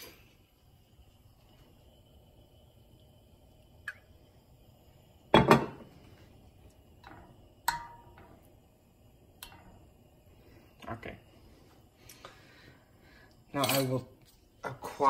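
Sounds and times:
frying pan knocks and clinks: 5.4 - 5.8.

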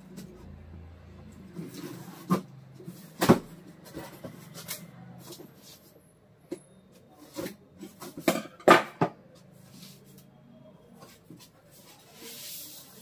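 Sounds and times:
rustling scrape: 1.5 - 3.2, 9.6 - 10.3, 11.0 - 13.0.

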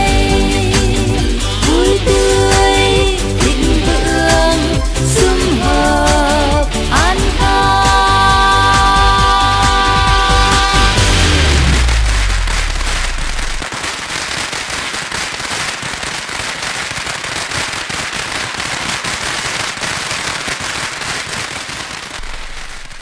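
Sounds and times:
firecrackers crackling: 0.0 - 23.0
low bass note: 7.4 - 13.6.

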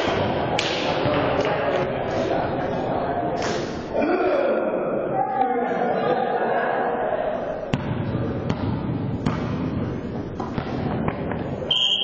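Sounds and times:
players' voices echoing: 0.0 - 12.0
volleyball being hit: 7.7 - 9.7.

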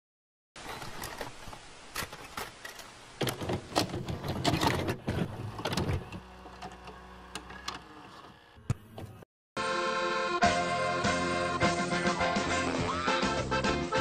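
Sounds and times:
mechanical clicking and whirring: 3.2 - 9.2.

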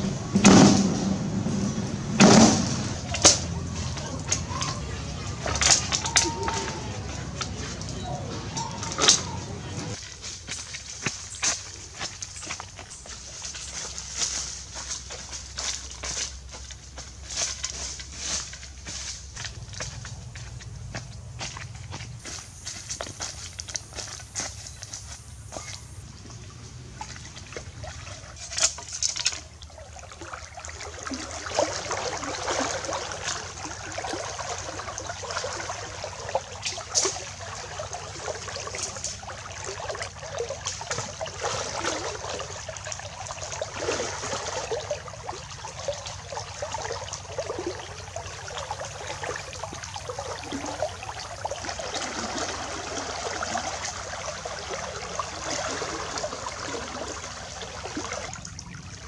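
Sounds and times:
legs wading through water: 1.8 - 59.0
sharp splashes: 2.2 - 10.0, 22.2 - 59.0.

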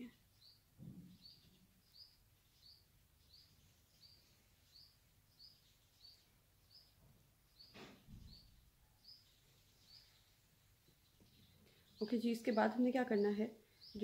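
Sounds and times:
small bird chirping: 0.0 - 14.0.

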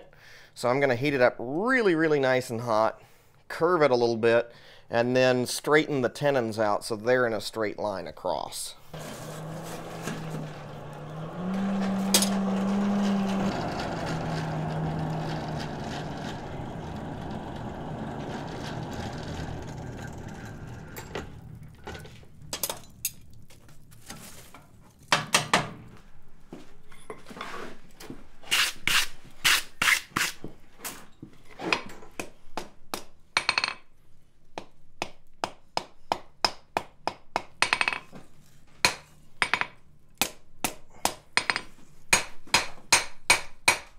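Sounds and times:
blower humming: 8.9 - 23.7.

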